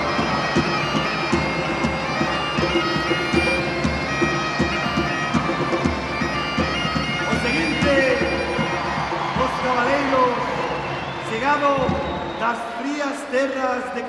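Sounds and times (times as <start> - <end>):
steady drum beat: 0.0 - 9.9
bagpipe music: 0.0 - 12.7.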